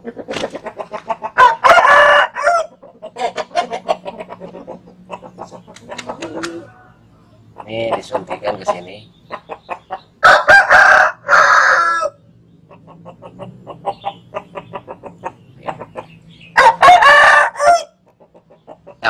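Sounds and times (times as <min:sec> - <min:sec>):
rooster clucking: 0:00.0 - 0:19.0
rooster crowing: 0:01.4 - 0:02.8, 0:06.3 - 0:07.4, 0:10.2 - 0:12.3, 0:16.5 - 0:18.1.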